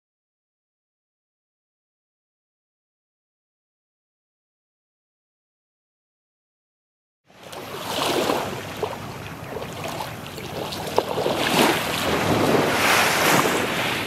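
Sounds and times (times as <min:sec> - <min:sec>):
surf washing onto beach: 0:07.4 - 0:14.0.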